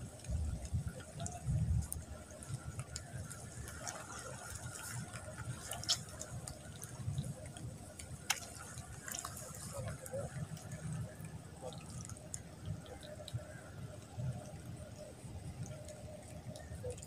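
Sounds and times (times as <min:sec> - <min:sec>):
wind rumble on microphone: 0:00.0 - 0:17.0
mud clicking and popping: 0:00.2 - 0:10.8.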